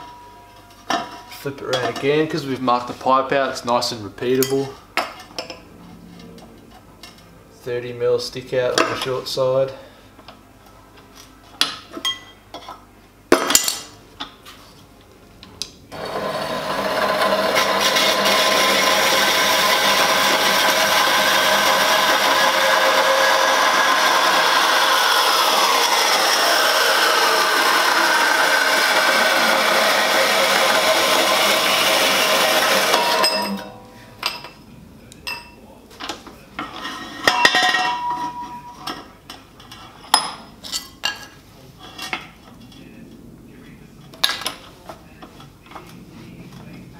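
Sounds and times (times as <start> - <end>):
band saw cutting metal pipe: 15.9 - 33.8.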